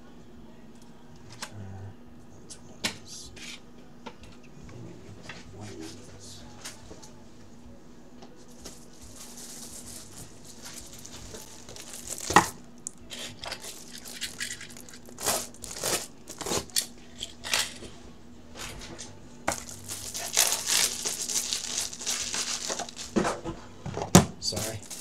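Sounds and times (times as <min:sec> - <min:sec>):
card packaging rustling: 0:08.7 - 0:12.6, 0:13.5 - 0:16.9, 0:19.5 - 0:23.4, 0:24.5 - 0:25.0.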